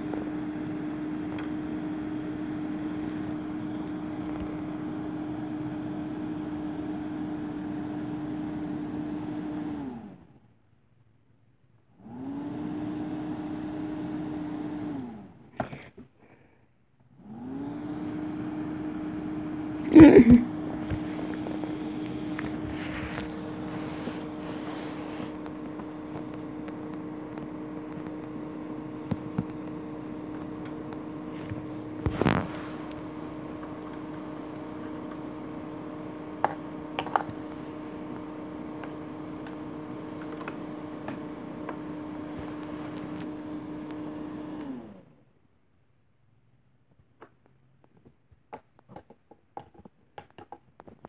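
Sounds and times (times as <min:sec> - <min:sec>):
small fan motor hum: 0:00.0 - 0:10.5, 0:11.8 - 0:16.0, 0:17.0 - 0:45.3.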